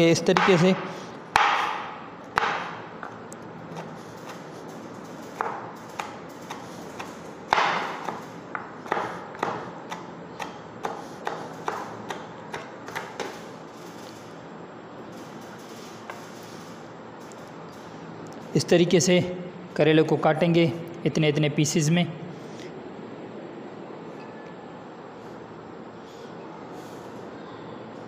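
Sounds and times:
knife chopping on wooden board: 0:00.4 - 0:00.8, 0:01.4 - 0:02.8, 0:05.4 - 0:13.3.

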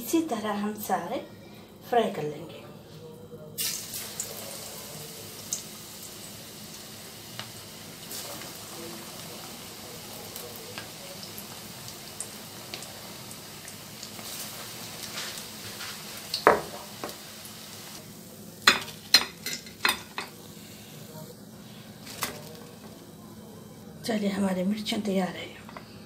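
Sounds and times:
food deep-frying in hot oil: 0:03.6 - 0:20.3.

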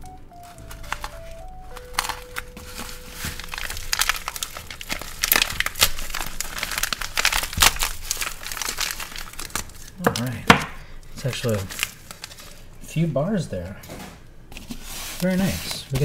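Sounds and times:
plastic packaging crinkling and tearing: 0:00.3 - 0:10.4, 0:11.0 - 0:12.8.

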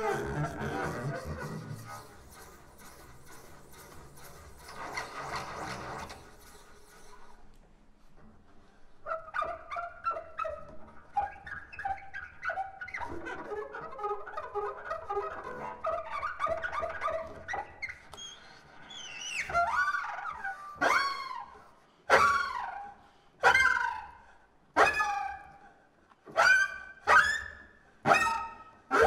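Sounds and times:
bowed double bass: 0:00.0 - 0:02.4.

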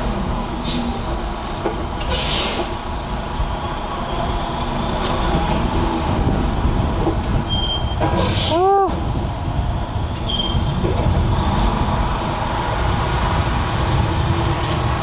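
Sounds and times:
air hiss: 0:02.1 - 0:02.8.

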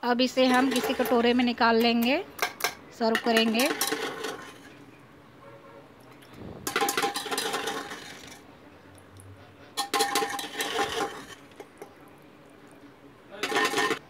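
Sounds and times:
metal spoon scraping in a pot: 0:00.2 - 0:05.0, 0:06.2 - 0:08.4, 0:09.4 - 0:12.0, 0:13.3 - 0:14.0.

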